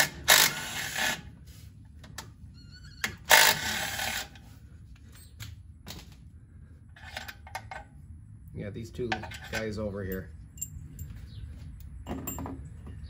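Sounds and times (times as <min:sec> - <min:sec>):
impact driver running: 0:00.0 - 0:01.2, 0:03.2 - 0:04.4.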